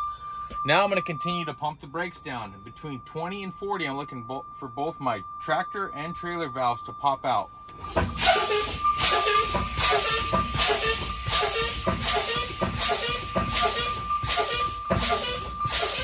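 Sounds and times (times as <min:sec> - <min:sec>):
low-air warning buzzer: 0:07.4 - 0:16.0
air brakes hissing: 0:07.7 - 0:16.0.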